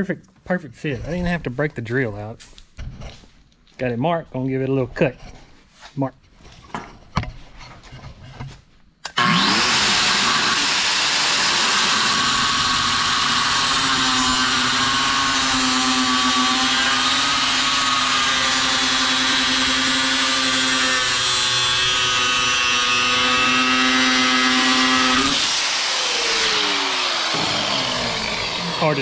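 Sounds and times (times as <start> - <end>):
angle grinder cutting metal: 9.1 - 29.0.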